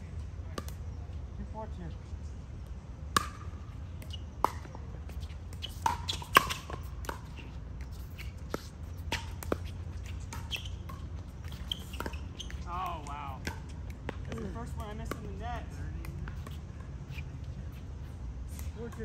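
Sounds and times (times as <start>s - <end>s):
ball bouncing on court: 3.1s - 17.6s.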